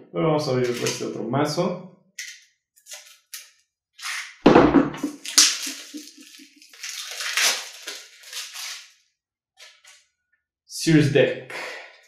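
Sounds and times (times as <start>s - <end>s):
plastic wrapping crinkling and tearing: 0.6s - 1.0s, 5.1s - 9.0s.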